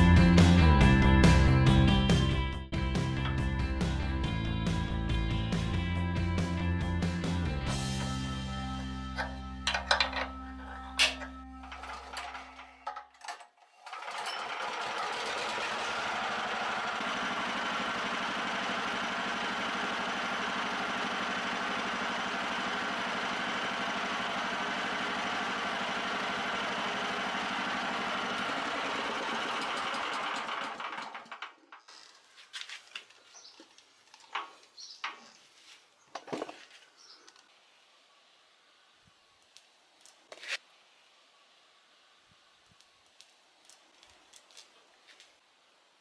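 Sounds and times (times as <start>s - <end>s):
small petrol engine running: 0.0s - 32.2s.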